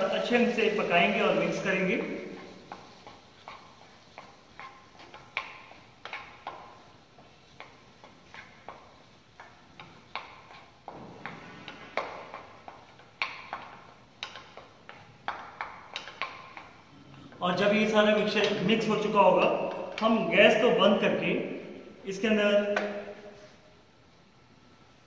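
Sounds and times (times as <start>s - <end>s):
wooden spoon knocking on frying pan: 12.0s - 16.7s.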